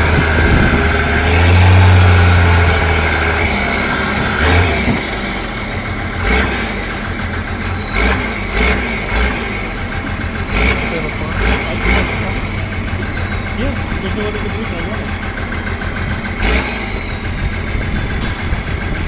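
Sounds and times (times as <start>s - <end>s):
truck engine droning: 0.0s - 19.0s.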